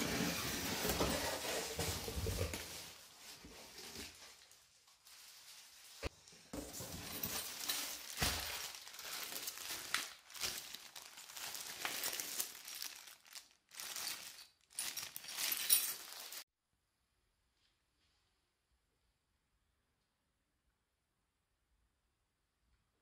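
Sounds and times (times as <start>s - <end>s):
plastic bags crinkling: 3.9s - 16.4s.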